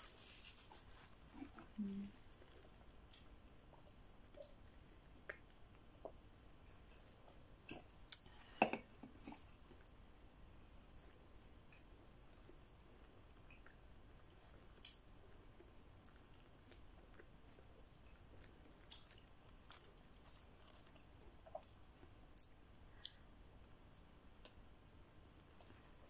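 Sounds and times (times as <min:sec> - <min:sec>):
chewing and mouth clicks: 0:02.2 - 0:06.2, 0:10.8 - 0:23.3.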